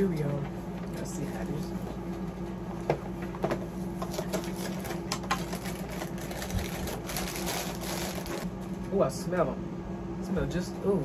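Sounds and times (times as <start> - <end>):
plastic bag crinkling: 4.0 - 8.5.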